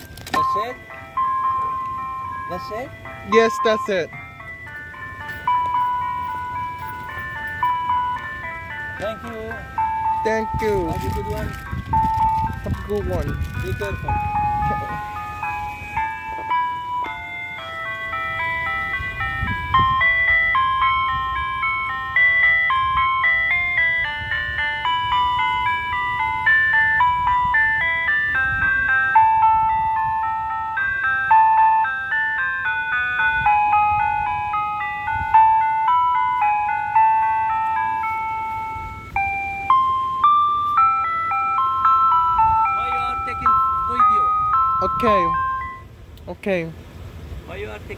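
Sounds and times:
ice cream truck jingle: 0.0 - 47.9.

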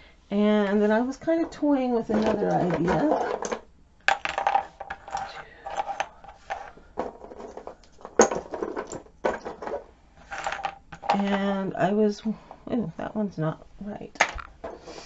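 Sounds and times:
wooden clothespins clattering: 1.4 - 11.5.

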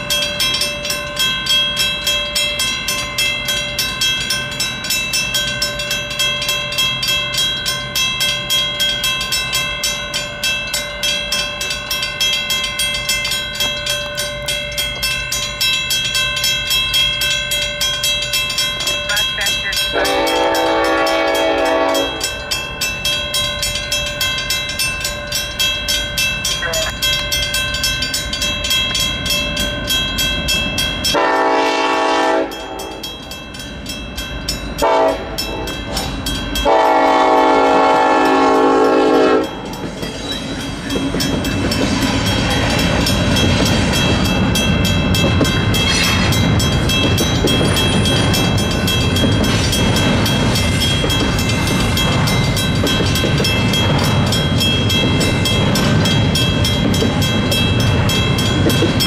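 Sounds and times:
crossing bell ringing: 0.0 - 59.0
train rumbling past: 0.0 - 59.0
wheels clacking on rails: 0.0 - 59.0
locomotive air horn blasts: 19.9 - 22.2, 31.2 - 32.6, 34.8 - 35.7, 36.6 - 39.5.

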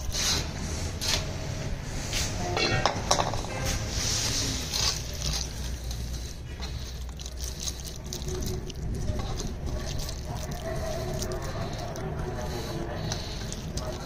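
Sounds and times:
hands squishing wet paste: 4.3 - 14.0.

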